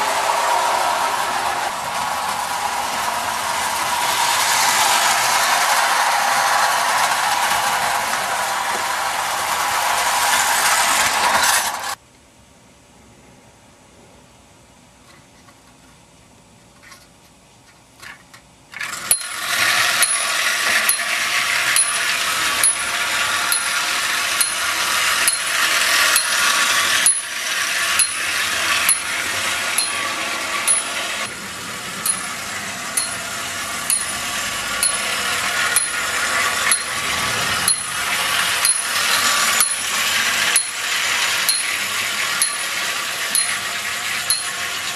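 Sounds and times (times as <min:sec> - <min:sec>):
clockwork motor whirring: 0:00.0 - 0:12.0, 0:18.8 - 0:44.9
toy train wheels clicking on track: 0:00.0 - 0:12.0, 0:18.0 - 0:44.9.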